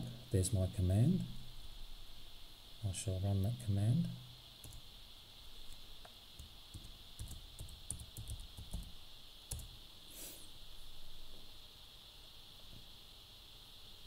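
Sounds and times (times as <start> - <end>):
laptop keyboard typing: 4.6 - 4.9, 6.4 - 9.8
short soft hiss: 10.0 - 10.6.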